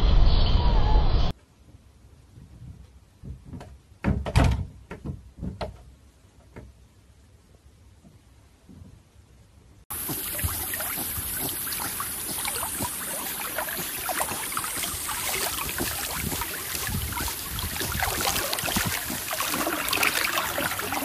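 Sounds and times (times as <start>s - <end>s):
water splashing around swimming dog: 9.9s - 21.0s.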